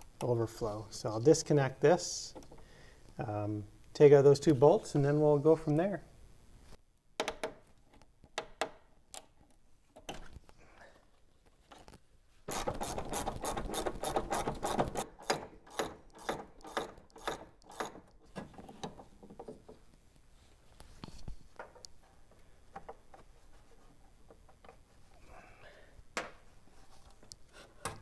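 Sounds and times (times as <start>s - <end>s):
socket ratchet clicking: 12.8s - 18.1s.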